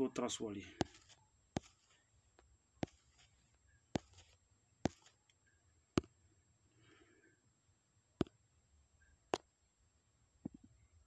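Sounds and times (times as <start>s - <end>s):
fingers tapping smartphone: 0.7s - 6.2s, 8.2s - 8.4s.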